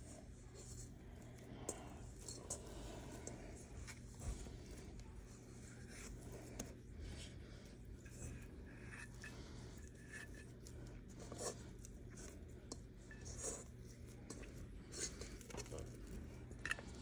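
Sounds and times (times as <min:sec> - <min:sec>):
dough scraping in a mixer bowl: 0:00.0 - 0:17.0
low steady hum: 0:00.0 - 0:17.0.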